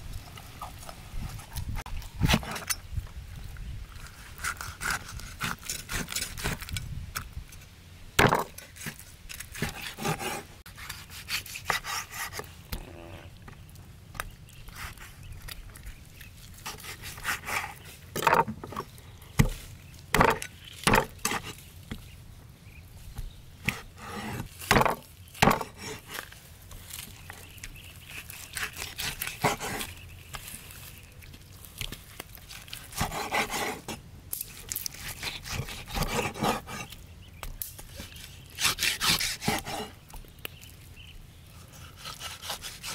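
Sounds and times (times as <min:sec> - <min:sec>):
knife slicing through meat: 0:38.6 - 0:39.9.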